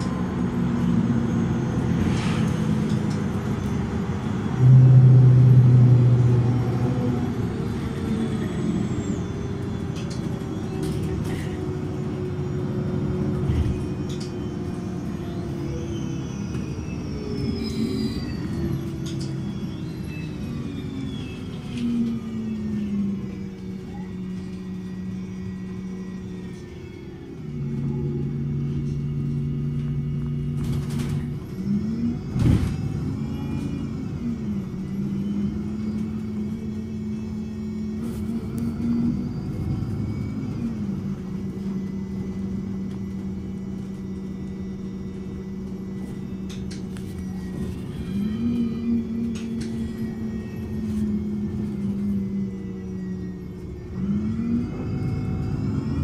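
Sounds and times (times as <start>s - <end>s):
bus diesel engine idling: 0.0s - 56.0s.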